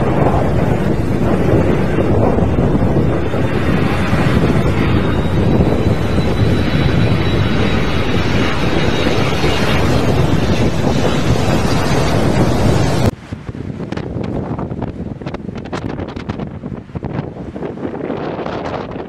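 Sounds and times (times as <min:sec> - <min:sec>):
faint high whine: 0:00.0 - 0:13.1
wind buffeting microphone: 0:00.0 - 0:19.0.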